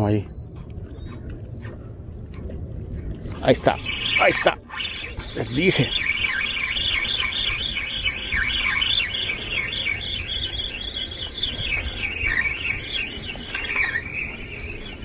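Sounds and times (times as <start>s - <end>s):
fishing reel gears whining: 3.8s - 14.8s.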